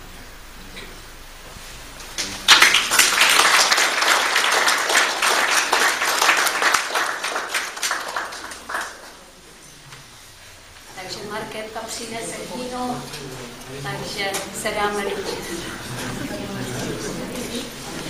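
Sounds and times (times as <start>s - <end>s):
small audience applauding: 2.2s - 9.4s.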